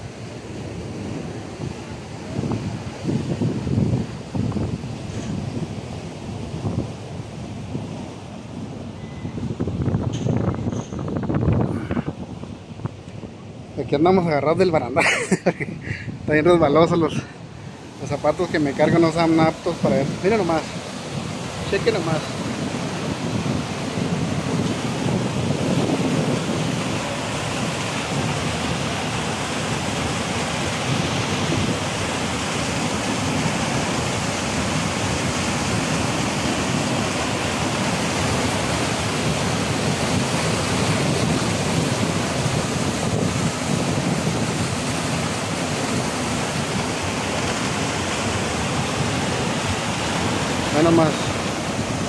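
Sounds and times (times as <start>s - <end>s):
waterfall rushing: 16.3s - 52.0s.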